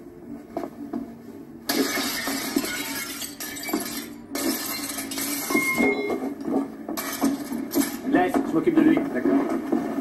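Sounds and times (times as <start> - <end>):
glass smashing and clattering: 1.7 - 5.9.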